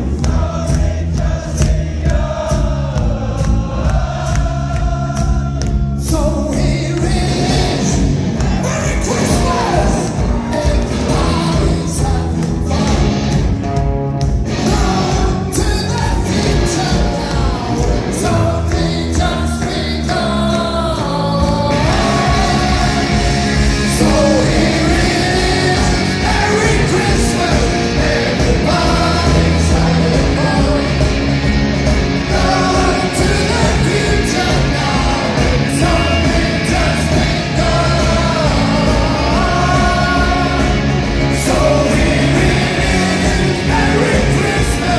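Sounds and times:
live rock band playing: 0.0s - 44.9s
person singing: 14.6s - 31.4s.

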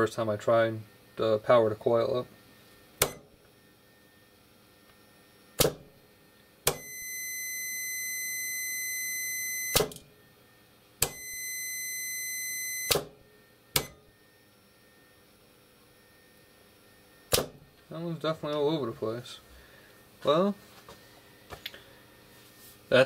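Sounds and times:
multimeter continuity beep: 6.7s - 10.0s, 11.0s - 13.1s, 13.7s - 14.8s.

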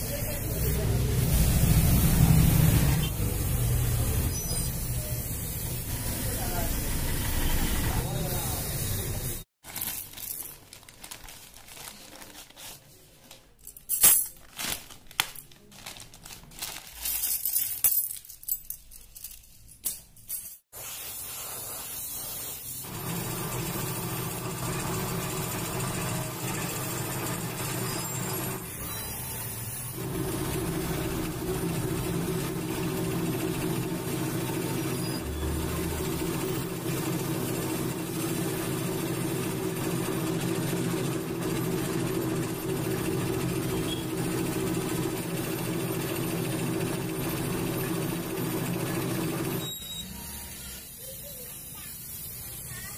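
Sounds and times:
spray gun and compressor hissing: 0.0s - 9.4s, 20.8s - 41.9s
plastic packets rustling: 9.6s - 19.7s.

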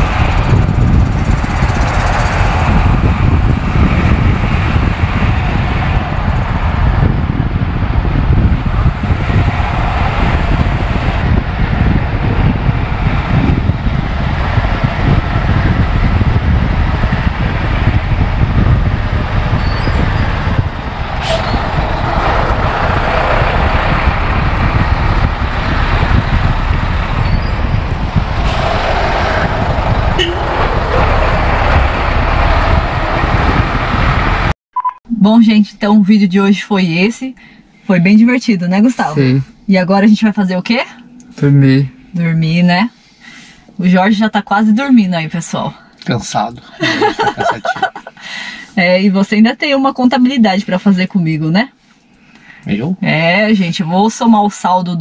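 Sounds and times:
road and wind noise: 0.0s - 34.6s, 35.2s - 55.0s.

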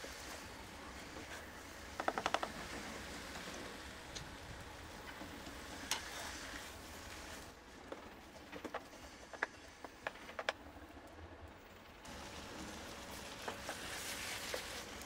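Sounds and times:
food sizzling in a frying pan: 12.1s - 15.0s.

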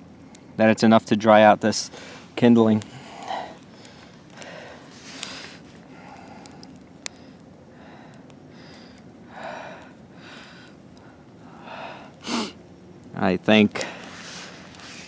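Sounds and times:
campfire crackling and popping: 0.0s - 15.0s
person breathing and sniffing: 2.9s - 6.6s.

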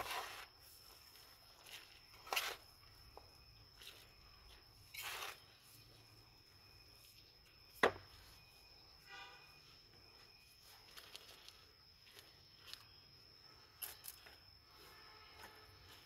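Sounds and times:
soil rustling: 0.0s - 7.4s.

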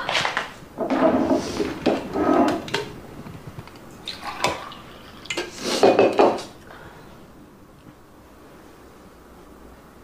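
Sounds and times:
water pouring into mug: 4.0s - 5.5s.

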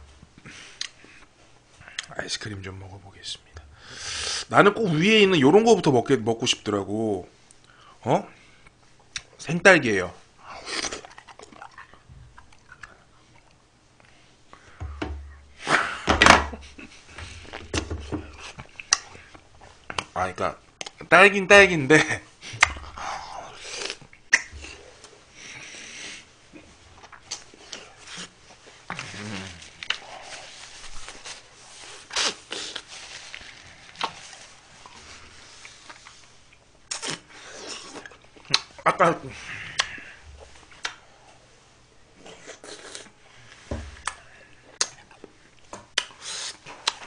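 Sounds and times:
man chewing with crunching: 10.5s - 14.8s, 16.7s - 20.1s, 23.6s - 38.8s, 42.2s - 47.0s
sharp mouth smacks: 24.3s - 24.7s, 46.0s - 46.2s.

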